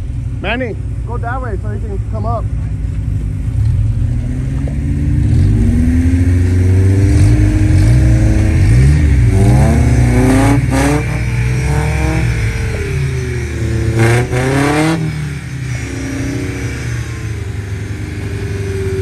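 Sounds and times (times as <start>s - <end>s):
engine revving under load: 3.4s - 19.0s.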